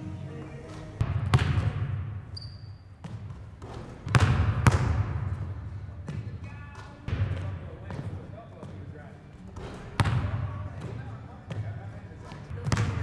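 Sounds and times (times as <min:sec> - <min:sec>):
basketball bouncing on wooden floor: 0:01.0 - 0:08.8, 0:09.6 - 0:11.7, 0:12.5 - 0:13.0
high squeak: 0:02.4 - 0:02.8.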